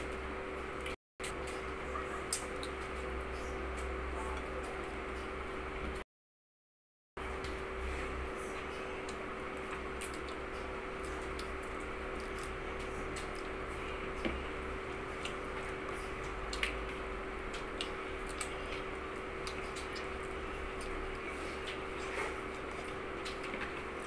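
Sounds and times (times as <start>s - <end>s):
steady hum: 7.2s - 24.0s
chewing: 15.0s - 24.0s.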